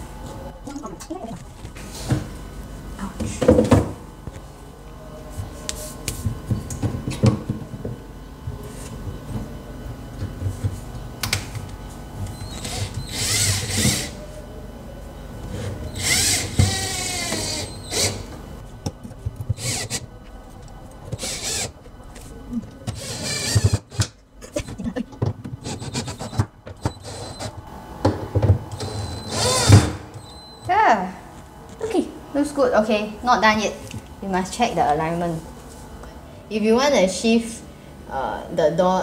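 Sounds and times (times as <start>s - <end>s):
cordless drill whirring: 12.4s - 14.2s, 15.9s - 18.3s, 19.6s - 20.0s, 21.2s - 21.8s, 22.9s - 24.0s, 25.6s - 27.5s, 28.8s - 29.9s.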